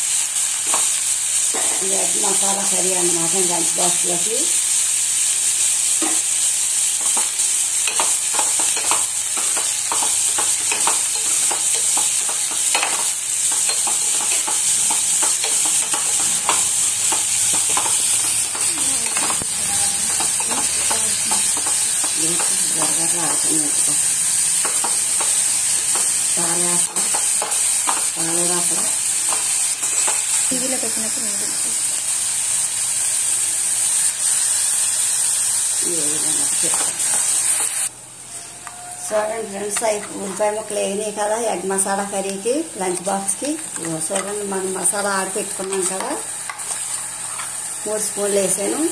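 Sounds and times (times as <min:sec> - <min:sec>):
food sizzling in hot oil: 0:00.0 - 0:48.9
metal spoon scraping pot: 0:07.0 - 0:23.0, 0:43.6 - 0:47.8.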